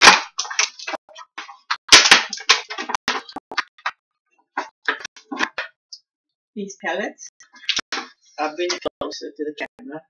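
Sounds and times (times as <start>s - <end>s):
plastic packaging crinkling: 0.0s - 3.9s, 4.6s - 5.7s, 7.6s - 8.8s.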